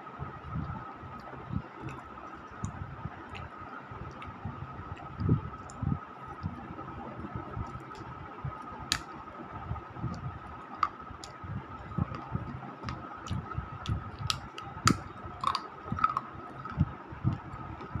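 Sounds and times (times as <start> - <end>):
chewing and crunching clay: 12.0 - 18.0.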